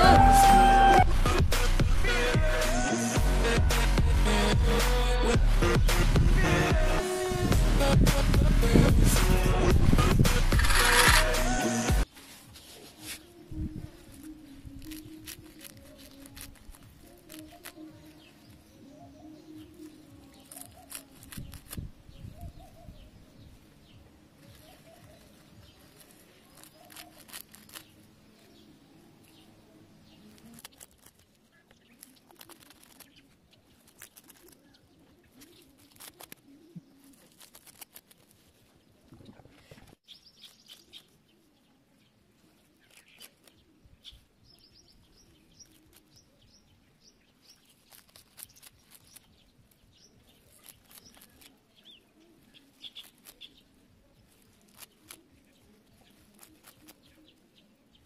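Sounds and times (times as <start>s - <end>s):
grass rustling and clicks: 9.1s - 18.8s, 19.5s - 21.9s, 23.6s - 29.4s, 30.0s - 41.3s, 42.4s - 44.2s, 47.4s - 57.5s
small birds chirping: 10.6s - 58.0s.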